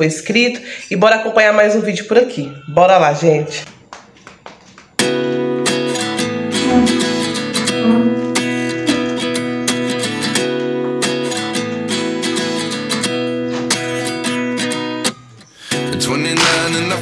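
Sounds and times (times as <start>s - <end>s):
guitar strumming chords: 5.6s - 15.1s.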